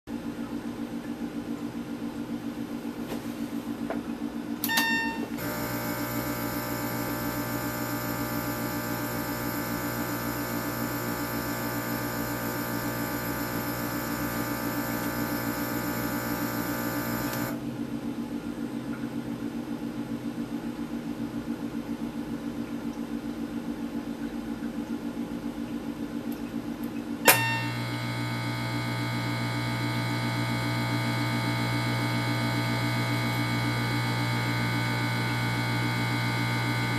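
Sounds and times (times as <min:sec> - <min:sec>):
internal pump running: 0:00.1 - 0:19.9, 0:20.5 - 0:36.9
steady machine hum: 0:00.1 - 0:36.9
short beeps: 0:04.7 - 0:05.3.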